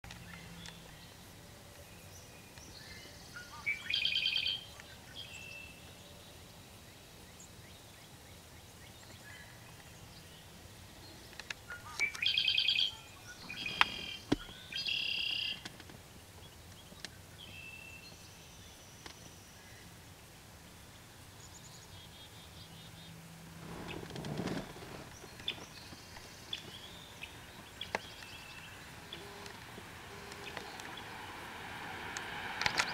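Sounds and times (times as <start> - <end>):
blackbird buzzy song: 0.1 - 31.6, 32.2 - 32.9
faint chirps: 0.2 - 15.6
sharp clicks: 32.2 - 32.9.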